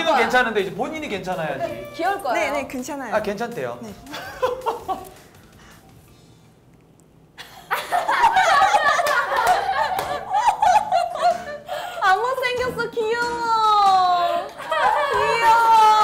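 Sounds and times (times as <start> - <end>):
young women laughing: 4.1 - 5.2, 7.4 - 12.0, 14.2 - 16.0.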